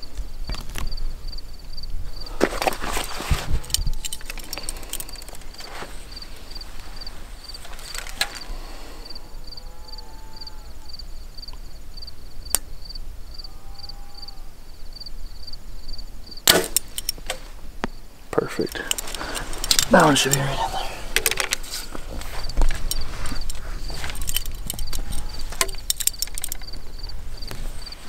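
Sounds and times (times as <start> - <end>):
insect chirping: 0.0 - 28.0
bow string crack: 7.6 - 8.6, 16.4 - 17.6
faint clicks of arrow nocking: 7.6 - 8.6.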